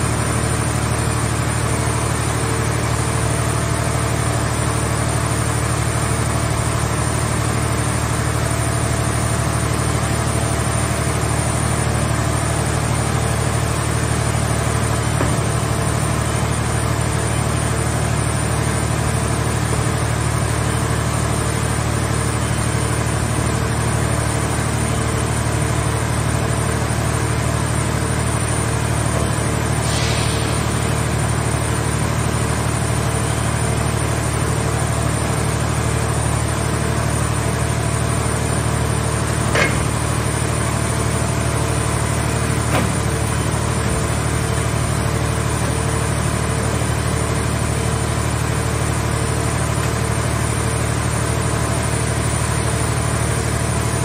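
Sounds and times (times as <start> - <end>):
petrol engine running: 0.0 - 54.0
sharp knocks: 39.5 - 40.0.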